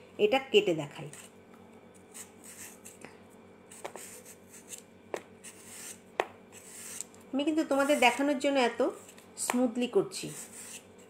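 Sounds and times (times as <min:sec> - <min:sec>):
peeler scraping potato skin: 0:02.0 - 0:03.0, 0:03.7 - 0:08.4, 0:10.2 - 0:11.0.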